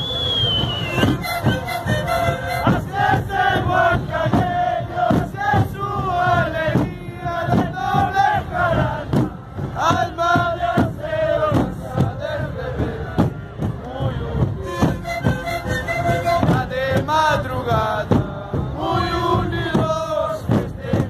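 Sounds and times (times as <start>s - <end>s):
panpipes playing in unison: 0.0s - 4.3s, 14.4s - 17.4s
bass drum beats: 0.4s - 21.0s.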